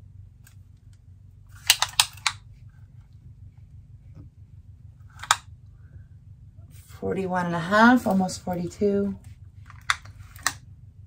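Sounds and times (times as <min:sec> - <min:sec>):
faint low hum: 0:00.0 - 0:11.0.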